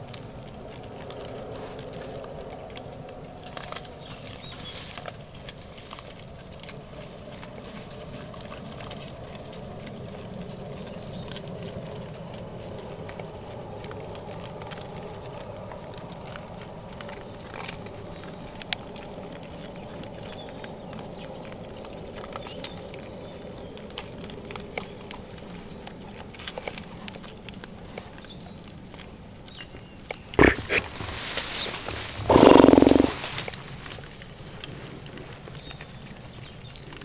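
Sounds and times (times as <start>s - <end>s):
small clicks and rustles: 0.0s - 37.0s
wild boars squealing and grunting: 30.4s - 33.4s.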